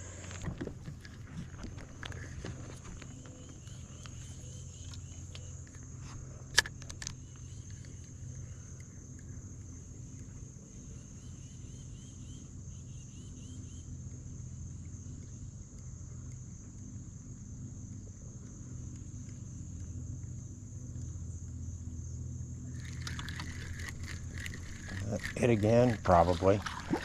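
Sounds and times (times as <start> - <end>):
insects droning: 0.0 - 27.0
low steady hum: 0.0 - 27.0.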